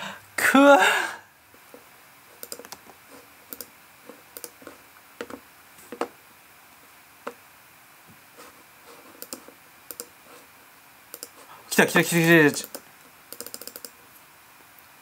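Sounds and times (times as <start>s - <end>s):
mouse and keyboard clicks: 2.4s - 3.7s, 4.4s - 6.0s, 9.2s - 10.1s, 11.1s - 11.4s, 12.5s - 14.0s.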